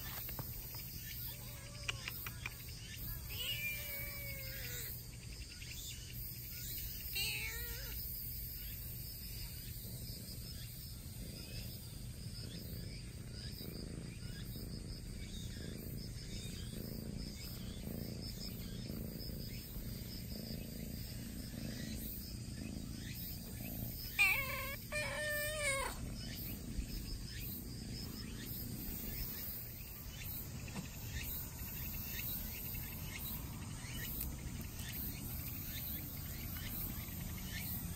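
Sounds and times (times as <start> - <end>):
insects chirring: 0.0 - 37.9
kitten meowing: 3.2 - 4.9, 7.2 - 8.0, 24.2 - 26.0.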